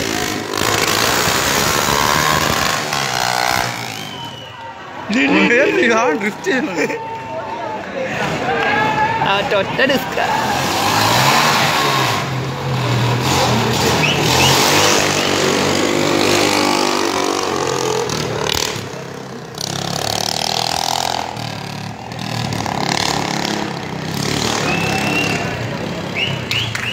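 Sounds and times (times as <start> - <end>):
go-kart engine revving: 0.0 - 4.5, 9.9 - 26.9.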